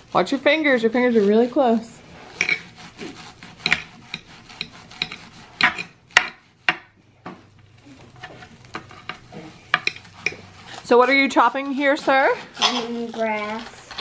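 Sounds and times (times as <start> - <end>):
knife scraping board: 0.0 - 6.9, 8.0 - 14.0
knife chopping on cutting board: 2.3 - 7.5.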